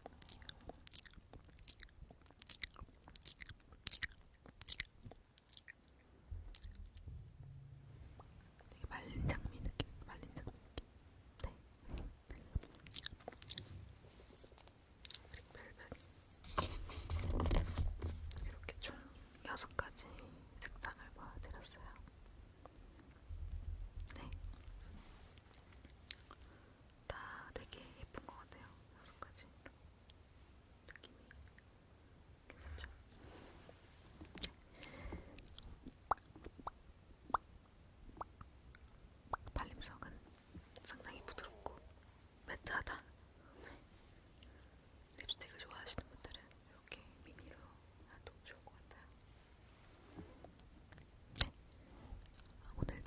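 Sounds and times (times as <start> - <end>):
wet mouth clicks and lip smacks: 0.0 - 7.0, 12.4 - 13.6, 34.3 - 34.6, 35.4 - 37.5, 38.2 - 39.6, 51.4 - 52.5
soft brushing noise: 13.6 - 14.8, 15.6 - 18.3, 24.7 - 25.4.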